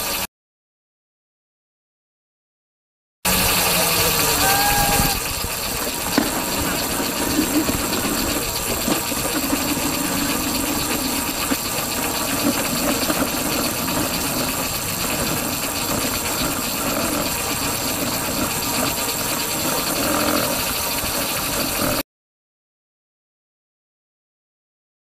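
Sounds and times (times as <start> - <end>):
vehicle mechanical drone: 3.3 - 22.0.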